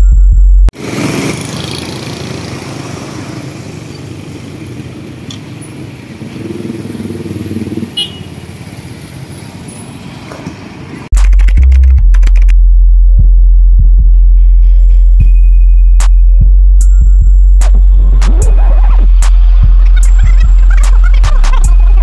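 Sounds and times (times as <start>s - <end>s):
street traffic: 0.0s - 22.0s
motorcycles passing: 0.8s - 11.1s.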